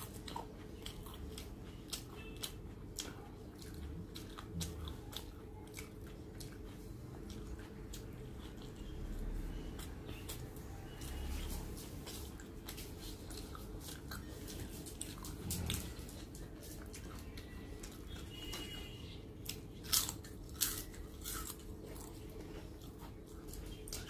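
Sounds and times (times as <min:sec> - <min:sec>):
person chewing: 0:00.0 - 0:24.0.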